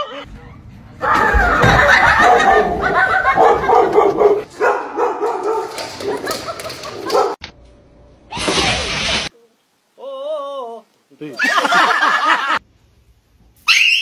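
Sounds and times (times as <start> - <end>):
dog barking and whimpering: 2.0 - 6.3, 7.0 - 7.4.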